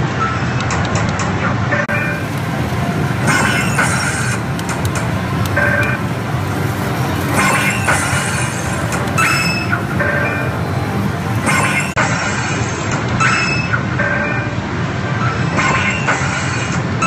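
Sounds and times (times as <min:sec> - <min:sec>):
pachinko parlor din: 0:01.7 - 0:14.8
bright chiming slot machine effects: 0:01.9 - 0:12.0.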